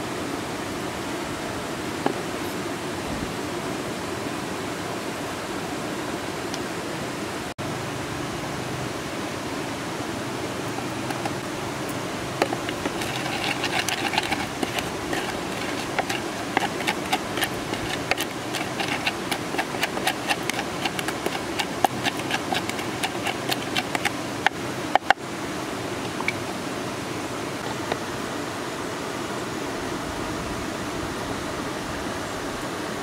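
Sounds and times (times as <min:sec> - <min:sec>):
rushing stream water: 0:00.0 - 0:33.0
pestle pounding in wooden mortar: 0:11.0 - 0:11.4, 0:12.4 - 0:25.2.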